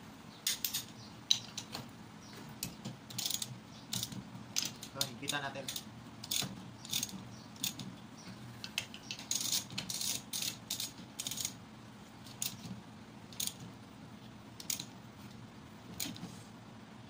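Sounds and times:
ratchet wrench clicking: 3.1 - 7.8, 9.1 - 11.6, 13.3 - 13.6, 14.6 - 14.9.

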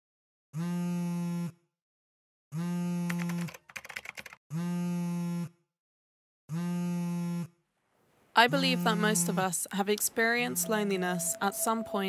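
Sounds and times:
rapid sharp clicks: 3.1 - 4.4.

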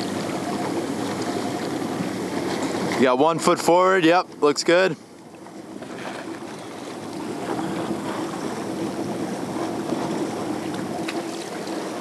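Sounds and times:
wind and sea water rushing: 0.0 - 12.0.

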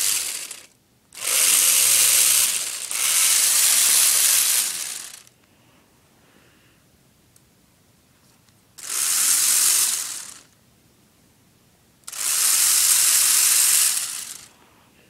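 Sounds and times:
toy motor whirring plastic gears: 0.0 - 5.3, 8.8 - 10.6, 12.1 - 14.6.

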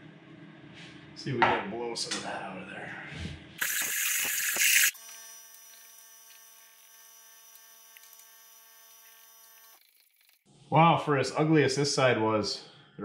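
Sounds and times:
compressed air blasting: 3.6 - 4.9.

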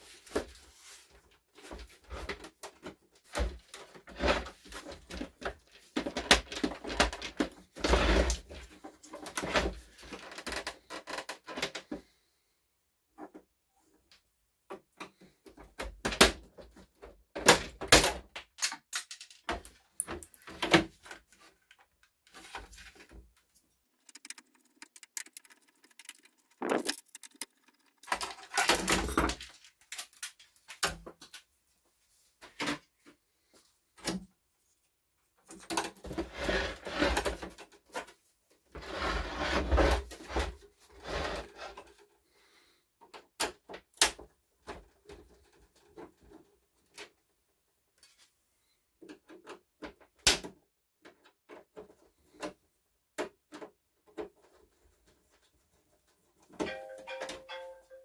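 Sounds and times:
plastic panels scraping and rattling: 20.4 - 31.0.

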